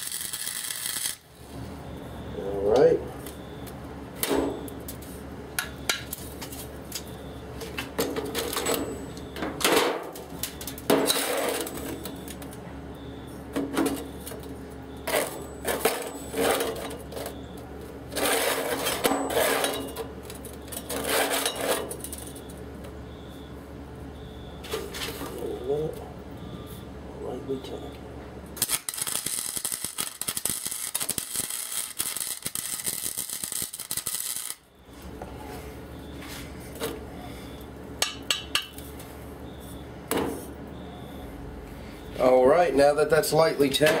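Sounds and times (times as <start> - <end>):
metal tools clanking on steel table: 18.2 - 20.1.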